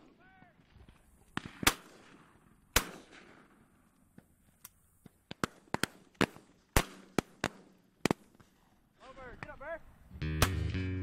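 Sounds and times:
shotgun shots: 0:01.3 - 0:03.6, 0:05.3 - 0:08.5.

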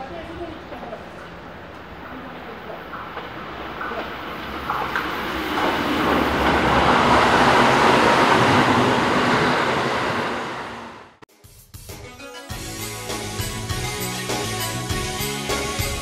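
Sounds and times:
train wheels running on rails: 0:00.0 - 0:11.2.

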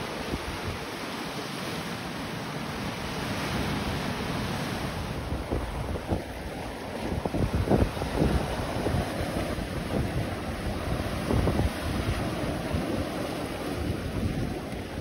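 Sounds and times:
surf breaking over rocks: 0:00.0 - 0:15.0
wind buffeting microphone: 0:04.7 - 0:15.0.

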